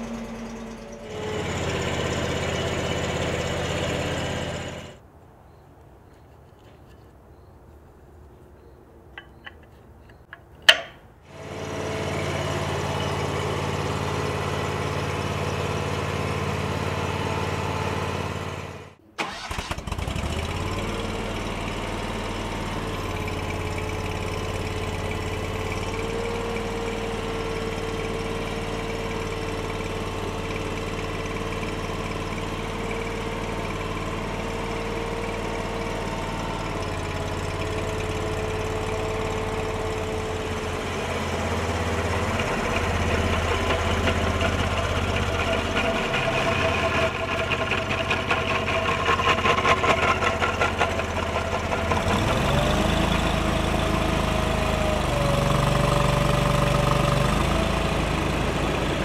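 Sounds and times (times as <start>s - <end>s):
loader engine running: 0.0s - 5.0s, 9.2s - 59.0s
sharp click: 9.1s - 11.0s.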